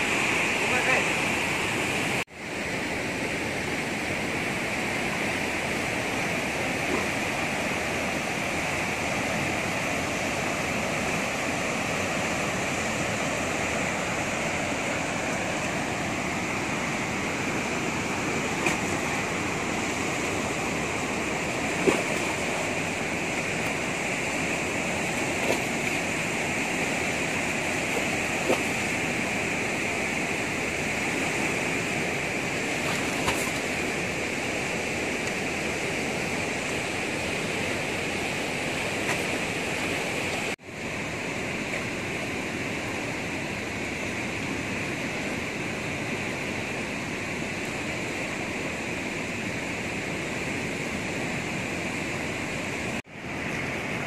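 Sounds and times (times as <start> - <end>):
river water rushing over rocks: 0.0 - 54.0.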